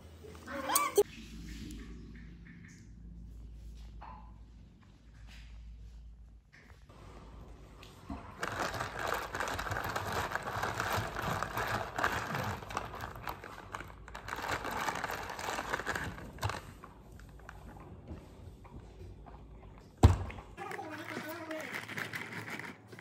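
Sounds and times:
ice clattering in plastic cup: 8.2 - 16.8, 20.6 - 23.0.

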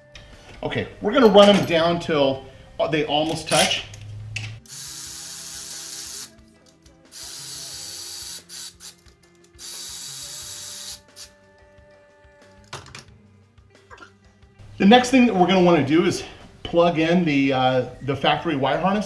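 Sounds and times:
cordless electric ratchet running: 4.6 - 6.4, 7.1 - 11.3.

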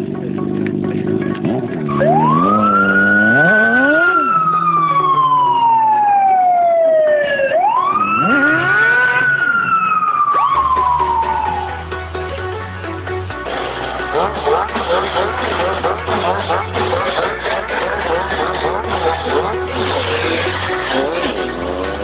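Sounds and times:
emergency siren wailing: 1.9 - 22.0.

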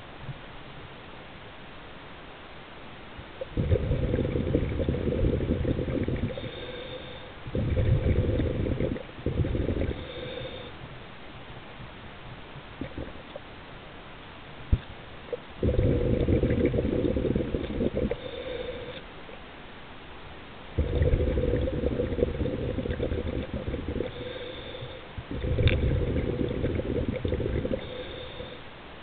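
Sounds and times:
underwater exhaled bubbles gurgling: 3.4 - 10.7, 12.8 - 13.4, 15.3 - 19.0, 20.8 - 28.6
regulator inhalation hiss: 4.0 - 10.8, 15.6 - 19.0, 21.3 - 28.7.

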